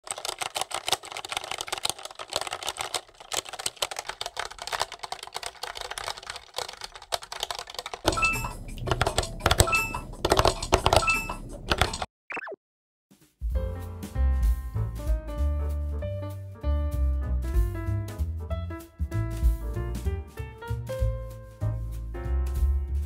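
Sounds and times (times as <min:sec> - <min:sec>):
mechanical keyboard typing: 0:00.0 - 0:12.1.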